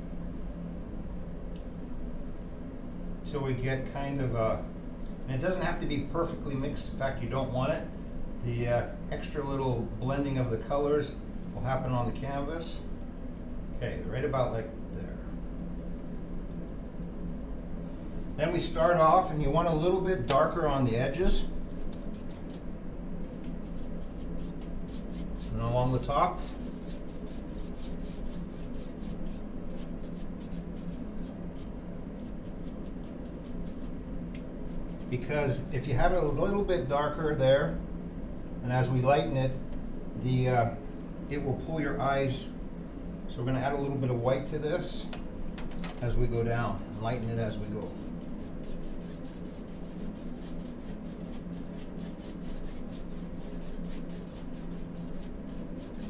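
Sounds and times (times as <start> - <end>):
steady low hum: 0.0 - 56.0
paintbrush scrubbing canvas: 21.7 - 34.0, 34.6 - 35.2, 46.9 - 56.0.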